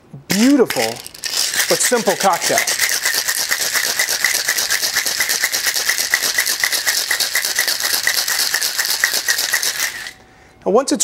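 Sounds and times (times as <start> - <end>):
ice rattling in cocktail shaker: 0.3 - 10.2.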